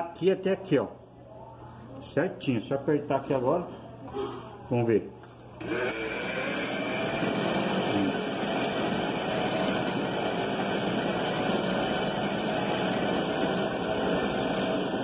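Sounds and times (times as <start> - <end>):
small electric motor winding: 5.6 - 8.2.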